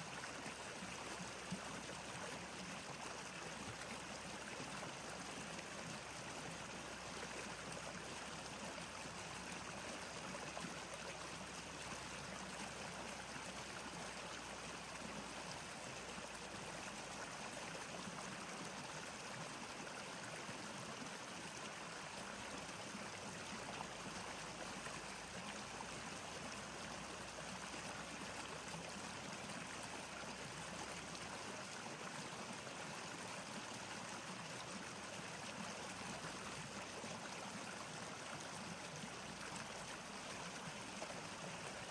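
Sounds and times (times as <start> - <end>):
flowing water rushing: 0.0 - 41.9.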